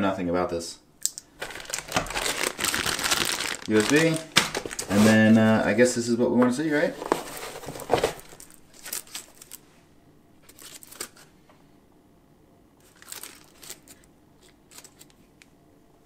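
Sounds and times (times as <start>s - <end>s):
plastic bag crinkling: 1.3s - 5.7s, 7.0s - 9.6s, 10.5s - 11.3s, 12.8s - 15.2s.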